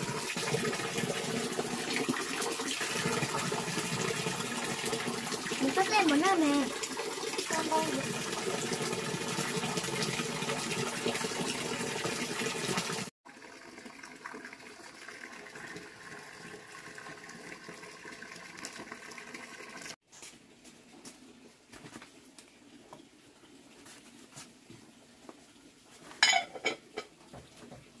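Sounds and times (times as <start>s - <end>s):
running water: 0.0s - 20.0s.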